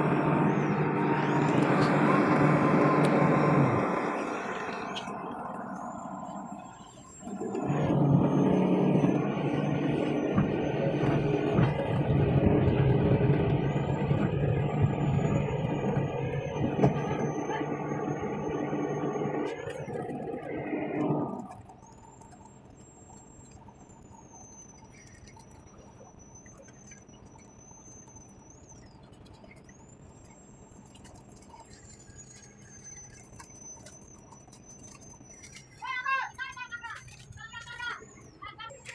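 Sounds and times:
high-pitched squeal: 0.0 - 22.1
excavator diesel engine running: 0.0 - 38.9.

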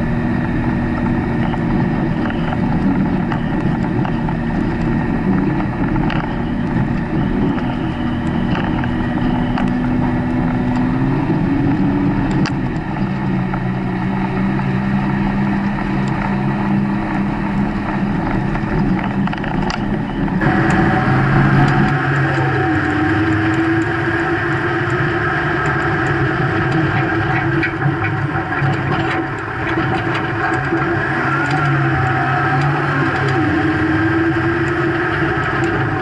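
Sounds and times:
diesel truck engine running: 0.0 - 36.0.

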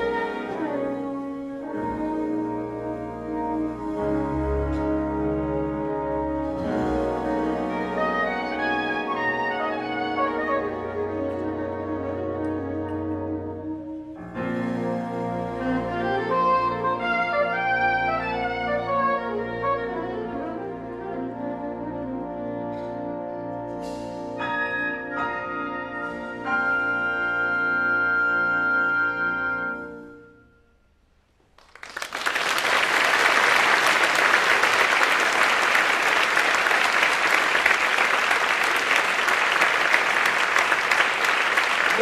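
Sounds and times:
audience applause: 31.6 - 42.0.

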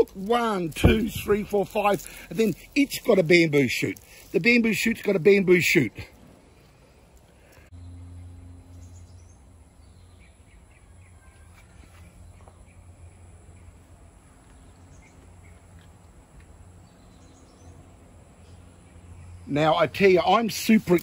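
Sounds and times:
faint bird chirps: 7.4 - 15.8.

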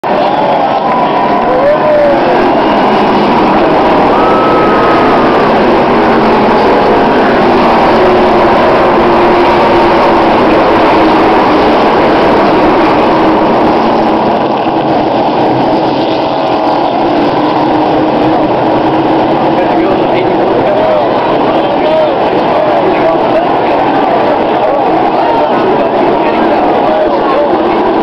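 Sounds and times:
race car engines at full throttle: 0.0 - 28.0.

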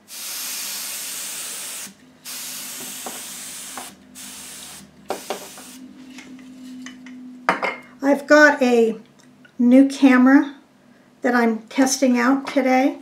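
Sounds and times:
compressed air duster hissing: 0.0 - 5.9.

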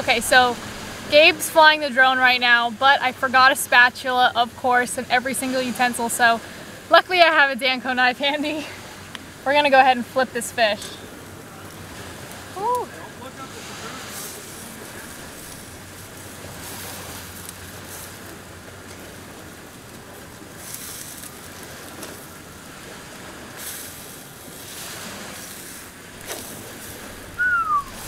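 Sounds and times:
surf-like hiss: 0.0 - 28.0
wind on microphone: 22.8 - 28.0.

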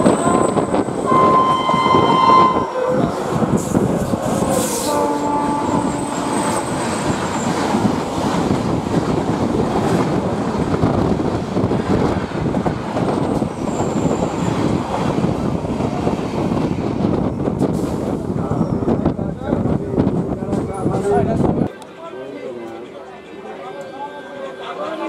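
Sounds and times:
train horn blast: 0.0 - 3.3, 4.6 - 7.0
train rattling past: 0.0 - 21.2.

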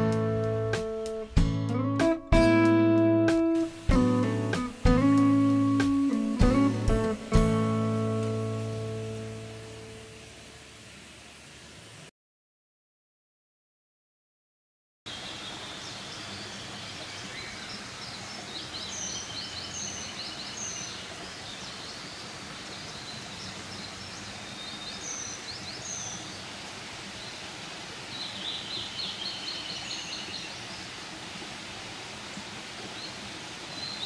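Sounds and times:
steady background hiss: 2.9 - 12.1, 15.1 - 34.0
songbirds singing: 15.1 - 31.0, 32.3 - 34.0.

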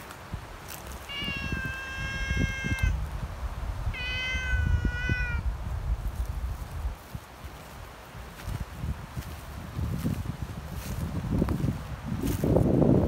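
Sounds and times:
cat meowing: 1.0 - 3.0, 3.9 - 5.5.

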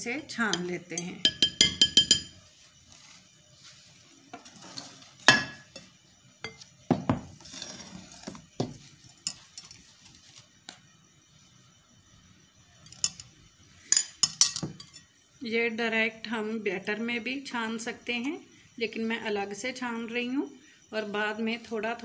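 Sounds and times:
utensils and bowls clinking: 0.5 - 2.4, 12.9 - 13.3, 13.9 - 15.1
soft rustle: 2.4 - 5.1.

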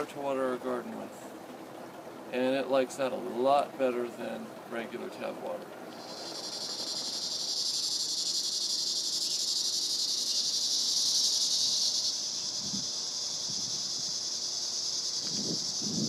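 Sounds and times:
insects buzzing: 0.0 - 16.0.

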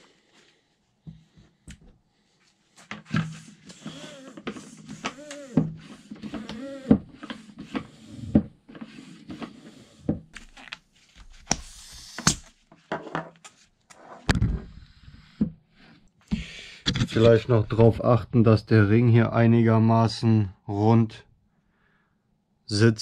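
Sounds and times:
floor pump strokes squeaking: 3.1 - 11.3.

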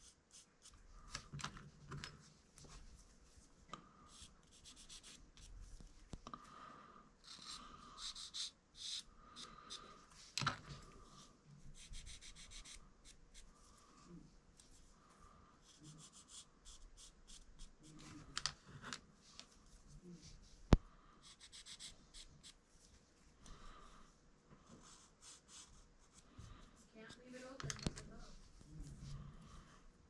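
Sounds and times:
marker scratching on wood: 4.1 - 5.5, 7.2 - 9.1, 11.8 - 13.5, 15.6 - 18.0, 21.2 - 22.6.

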